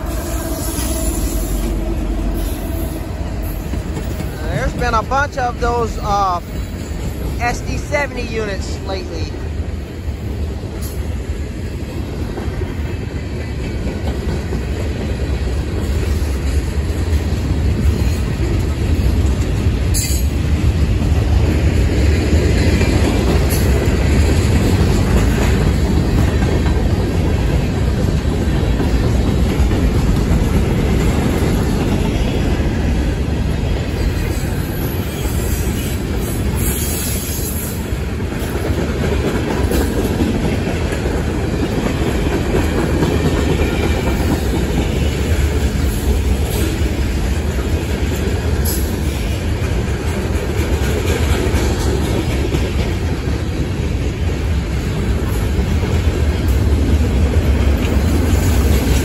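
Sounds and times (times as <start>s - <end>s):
train wheels rumbling on rails: 0.0s - 59.0s
wheels clacking over rail joints: 12.1s - 59.0s.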